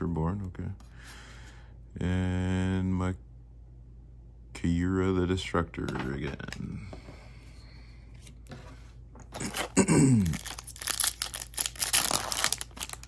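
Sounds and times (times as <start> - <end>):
foil pack crinkling and tearing: 9.4 - 13.0.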